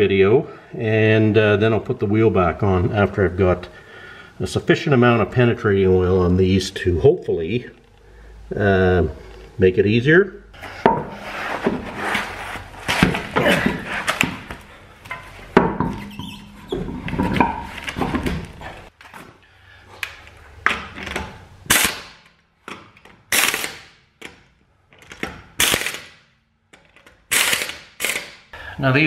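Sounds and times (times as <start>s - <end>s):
wheel clunking and scraping: 10.6s - 21.6s
pneumatic impact wrench bursts: 21.7s - 22.2s, 23.3s - 23.9s, 25.6s - 26.2s, 27.3s - 28.4s.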